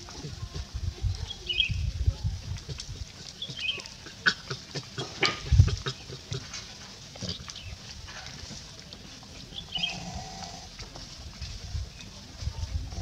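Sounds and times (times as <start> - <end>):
clicks and rustles: 2.5 - 9.6.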